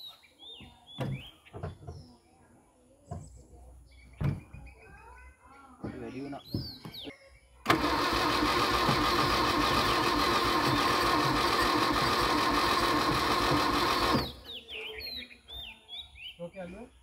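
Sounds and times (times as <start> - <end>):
starter motor cranking engine: 7.6 - 14.4.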